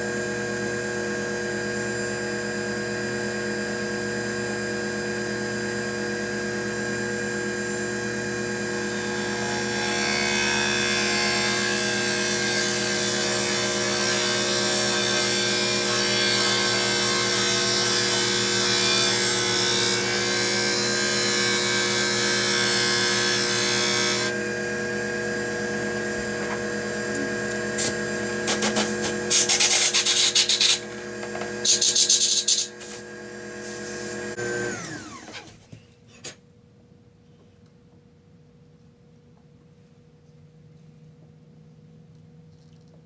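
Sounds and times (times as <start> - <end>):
lathe motor running: 5.2 - 29.5, 30.1 - 35.3.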